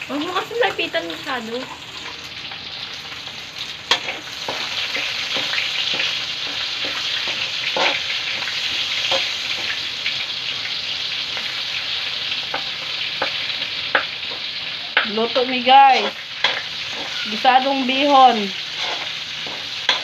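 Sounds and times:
food sizzling in hot oil: 0.0 - 20.0
spatula stirring: 3.9 - 9.8, 15.8 - 20.0.

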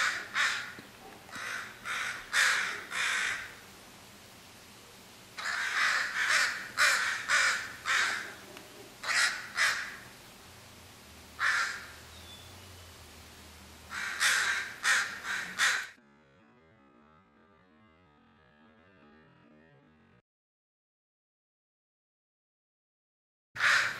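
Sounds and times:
crow cawing: 0.0 - 3.6, 5.4 - 8.4, 9.0 - 10.0, 11.4 - 12.0, 13.9 - 16.0, 23.6 - 23.9.

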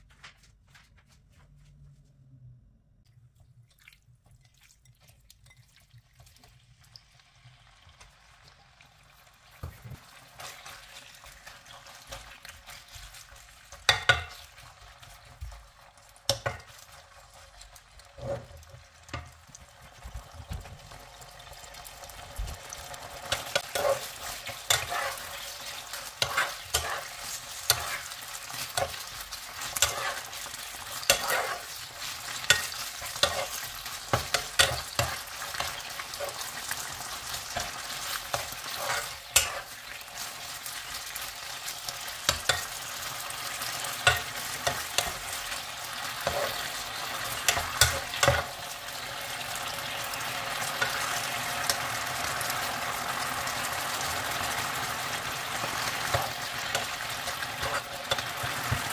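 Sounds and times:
chicken sizzling in oil: 4.4 - 58.9
plastic spatula scraping a pan: 18.2 - 18.7, 23.5 - 36.6, 37.6 - 39.8.

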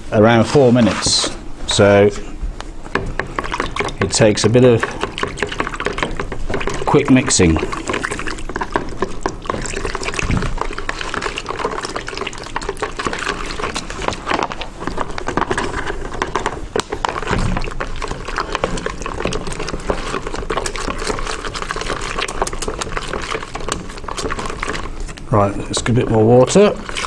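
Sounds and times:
spatula stirring and scraping: 0.0 - 27.0
foil bag crinkling: 6.8 - 25.2.

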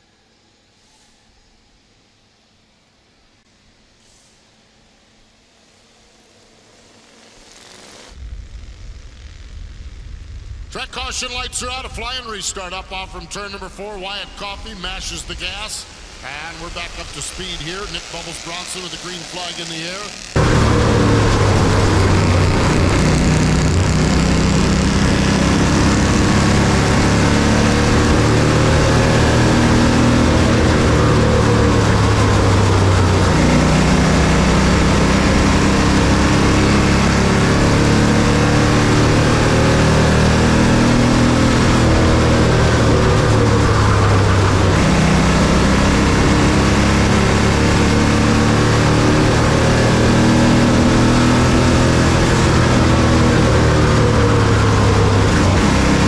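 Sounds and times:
race car engine running loud: 10.7 - 56.0.

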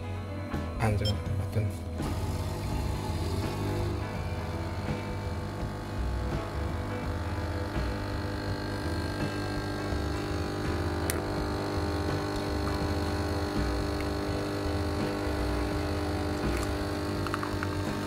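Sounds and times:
coffee machine pump humming: 2.0 - 18.0.

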